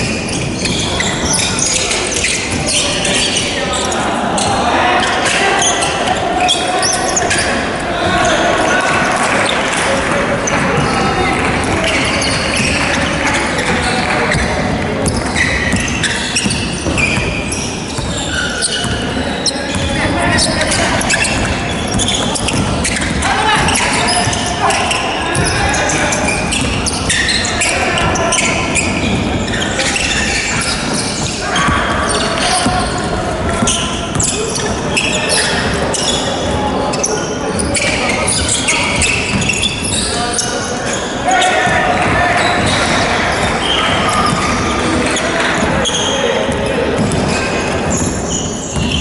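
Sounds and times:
players' voices: 0.0 - 49.0
sneaker squeaks: 0.0 - 49.0
basketball bouncing: 19.7 - 24.5, 48.8 - 49.0.

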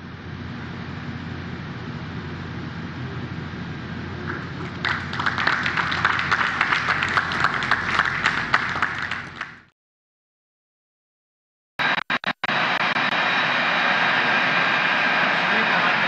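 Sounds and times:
steady low hum: 0.0 - 9.7, 11.8 - 16.0
audience applause: 4.3 - 9.7.

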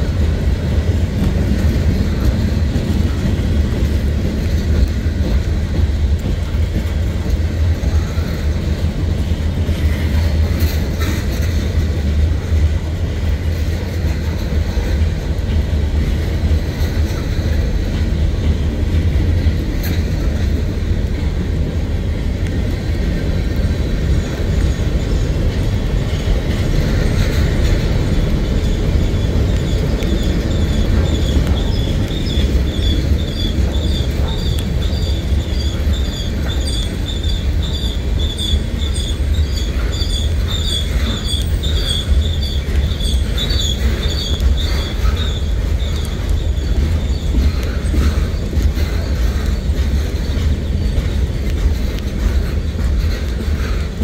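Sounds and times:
freight train wheels rumbling on rail: 0.0 - 54.0
wheels squealing: 22.9 - 54.0.

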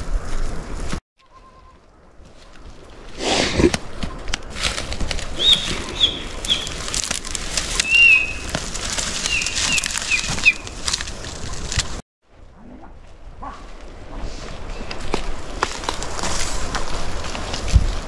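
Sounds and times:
flapping or rustling: 0.0 - 1.0, 1.8 - 12.0, 13.7 - 18.0
bird chirping: 5.4 - 6.8, 7.8 - 8.5, 9.2 - 10.7.

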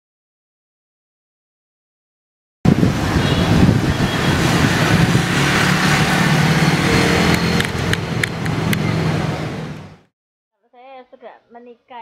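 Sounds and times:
passing vehicle engines: 2.7 - 10.1
sharp clicks: 7.3 - 8.9.

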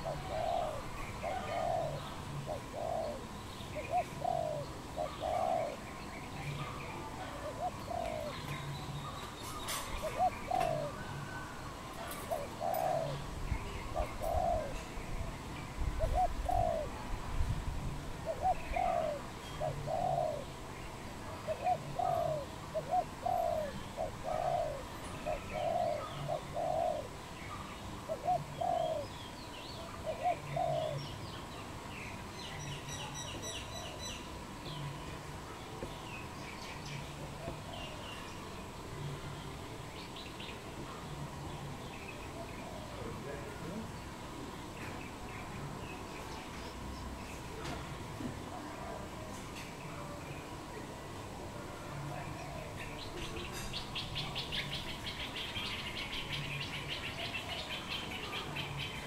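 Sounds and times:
dove cooing: 0.0 - 15.0, 15.8 - 17.2, 18.1 - 31.4, 37.1 - 39.2, 40.8 - 44.5, 51.2 - 59.0
small birds chirping: 0.0 - 16.9, 18.2 - 47.7, 52.0 - 59.0.

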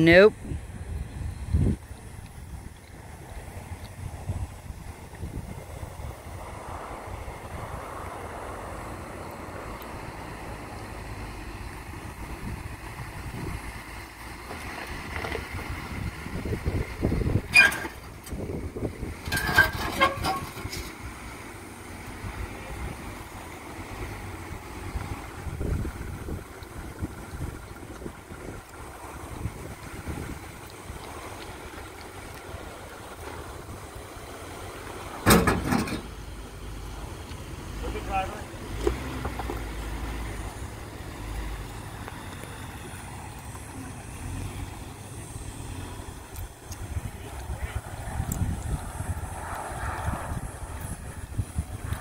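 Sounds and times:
truck engine rumble: 0.0 - 52.0
short high squeals: 17.5 - 18.0.

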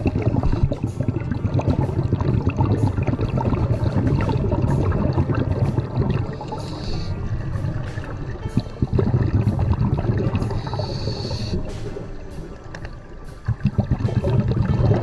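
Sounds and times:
muffled underwater rumble: 0.0 - 15.0.

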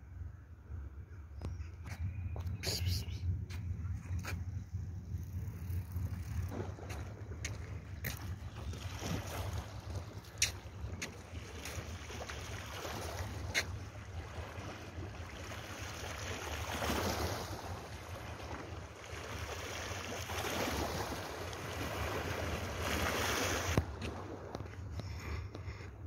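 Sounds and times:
low rumble: 0.0 - 12.1.

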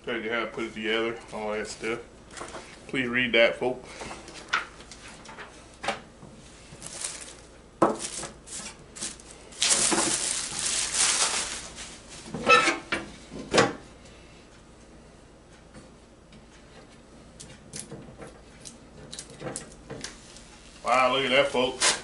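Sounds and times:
plastic wrapping crinkling: 6.8 - 12.3.

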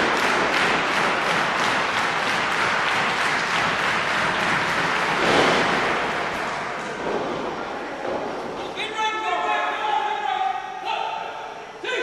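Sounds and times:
crowd applauding: 0.0 - 7.0.

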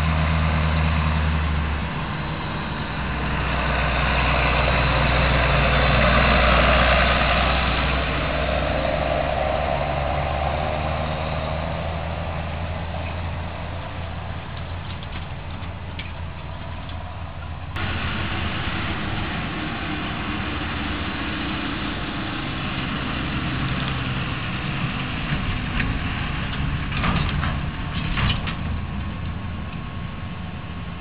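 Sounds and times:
tractor engine droning: 0.0 - 31.0
tractor with trailers passing: 0.0 - 31.0
trailer rig clattering: 13.0 - 17.7.

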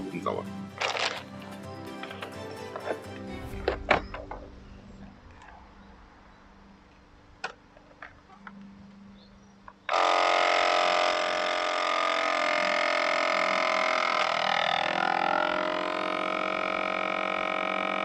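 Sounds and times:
vacuum sealer pump running: 9.9 - 18.0.

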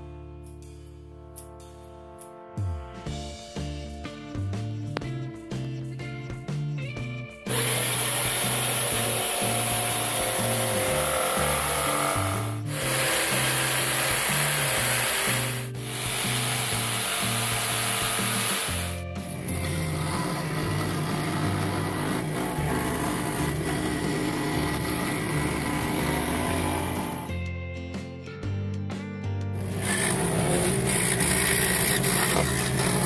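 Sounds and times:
background music with bass line: 0.0 - 33.0
jigsaw cutting wood: 7.5 - 27.4, 29.6 - 33.0
scroll saw cutting: 7.5 - 27.4, 29.6 - 33.0.

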